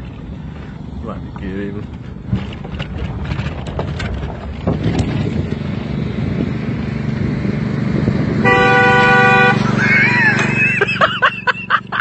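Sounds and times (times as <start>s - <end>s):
car engine running: 0.0s - 12.0s
wind on microphone: 2.3s - 9.5s.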